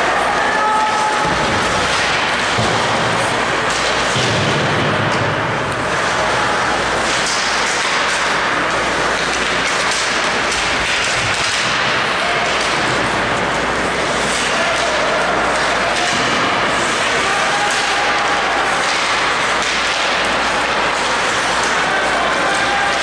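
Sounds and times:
ice hockey rink noise: 0.0 - 23.0
sticks and puck knocking: 7.0 - 23.0.

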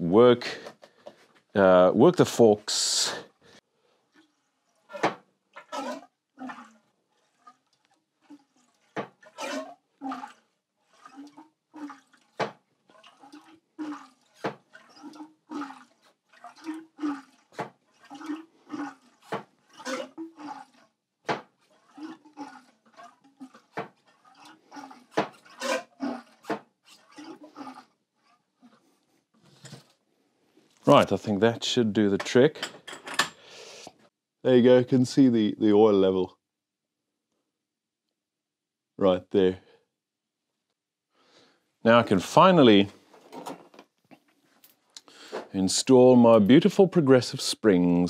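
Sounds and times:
oil gurgling and squelching: 2.2 - 31.1.

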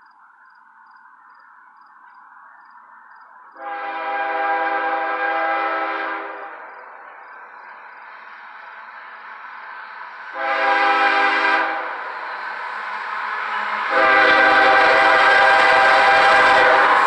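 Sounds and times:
train rumble: 0.0 - 17.0
locomotive air horn blasts: 3.6 - 6.7, 10.3 - 12.2, 13.3 - 17.0.

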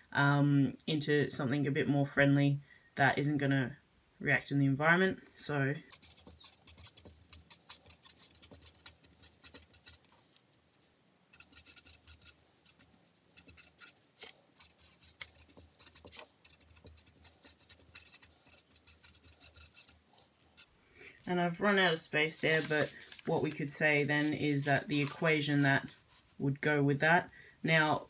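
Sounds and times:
marker scratching on paper: 5.9 - 10.4, 11.3 - 20.7.

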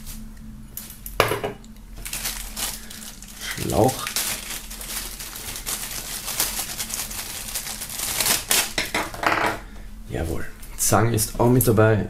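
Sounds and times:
plastic bag crinkling: 2.0 - 8.8.

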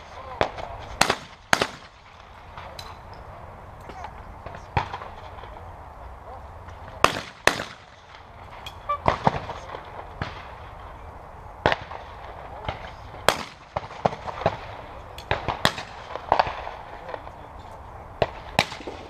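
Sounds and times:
shotgun shots: 0.0 - 2.9, 4.4 - 5.6, 6.9 - 10.9, 11.6 - 17.4, 18.2 - 19.0.

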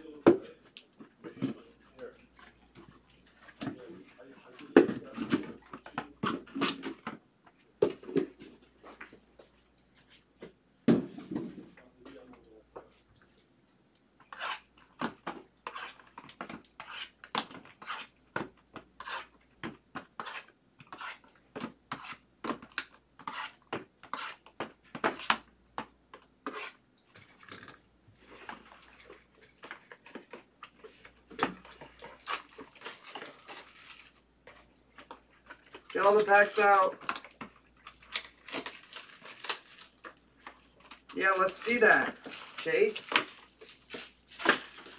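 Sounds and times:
plastic shrink wrap crackling: 31.6 - 34.2, 35.6 - 44.9.

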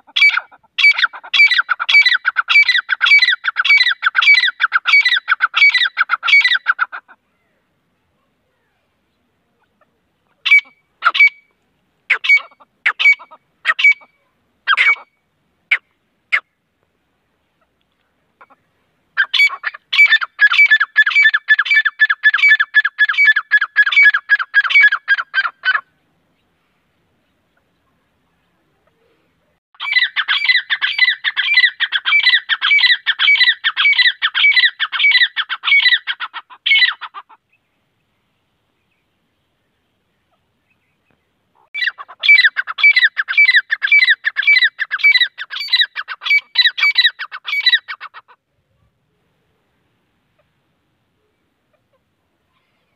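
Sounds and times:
francolin shrill calls: 0.1 - 7.1, 10.4 - 11.5, 12.1 - 16.4, 19.2 - 25.9, 29.8 - 37.6, 41.6 - 48.3.

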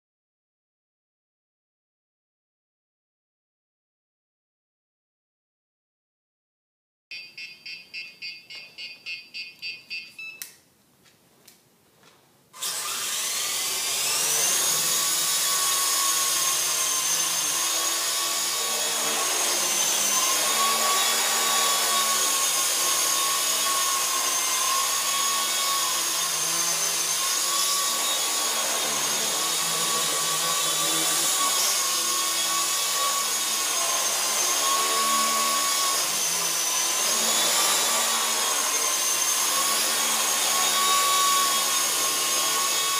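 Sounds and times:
clicks: 8.4 - 12.2.

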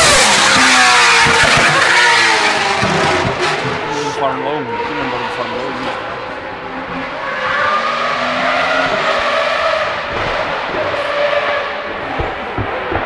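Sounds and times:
rally car engine at high revs: 0.0 - 13.0.

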